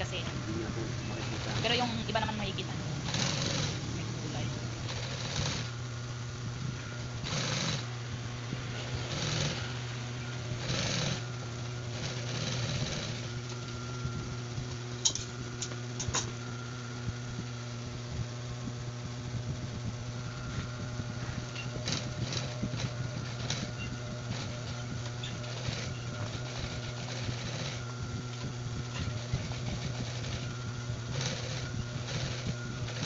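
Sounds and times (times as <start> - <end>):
sewing machine motor humming: 0.0 - 33.0
sewing machine stitching: 1.0 - 2.2, 3.0 - 5.7, 7.2 - 7.9, 8.8 - 9.8, 10.6 - 11.2, 12.0 - 13.4, 21.6 - 33.0.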